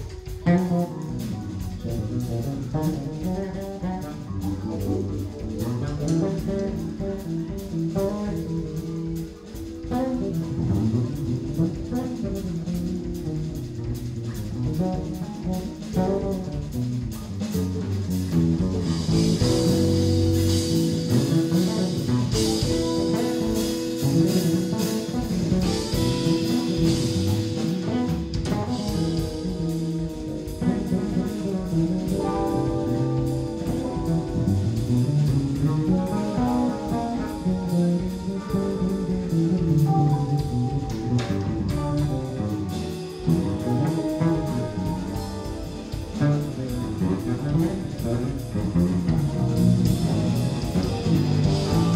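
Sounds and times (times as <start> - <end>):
drum kit with cymbals: 0.0 - 51.9
electric bass line: 0.0 - 51.9
electric guitar: 0.0 - 51.9
soprano sax held notes: 18.8 - 51.9.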